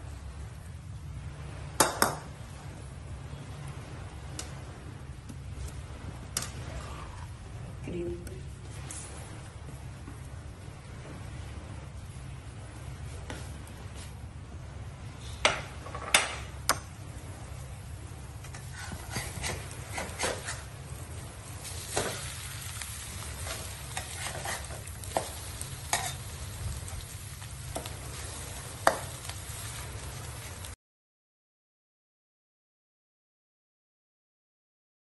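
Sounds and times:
light sizzle: 0:00.0 - 0:30.8
steady low hum: 0:00.0 - 0:30.8
spatula stirring and scraping: 0:18.5 - 0:20.7, 0:21.7 - 0:26.3.

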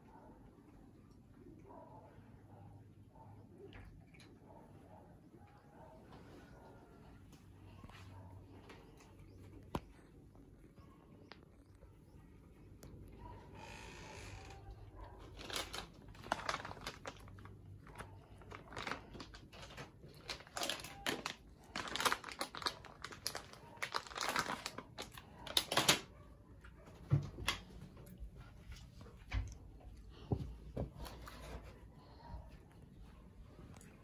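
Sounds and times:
foil balloons crinkling: 0:14.2 - 0:26.1.

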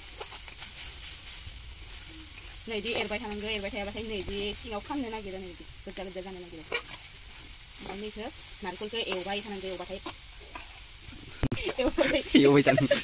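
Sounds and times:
light sizzle: 0:00.0 - 0:13.0
metal spatula scraping a pan: 0:00.0 - 0:13.0.

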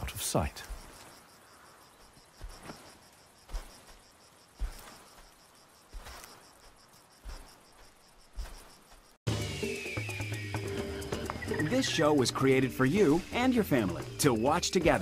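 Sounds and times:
crickets chirping: 0:00.0 - 0:15.0
soft low thumps: 0:03.4 - 0:09.2.

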